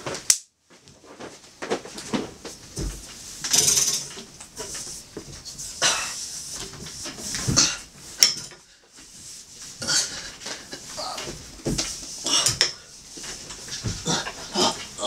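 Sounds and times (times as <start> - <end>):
metal bed frame clanking: 1.7 - 8.7, 9.8 - 15.0
heavy breathing: 9.8 - 11.4, 12.2 - 13.0, 13.8 - 15.0
man grunting: 14.0 - 15.0.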